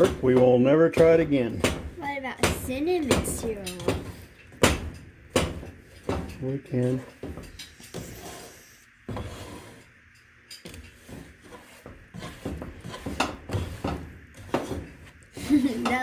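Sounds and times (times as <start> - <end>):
spoon scraping thick mixture in pot: 10.6 - 15.3.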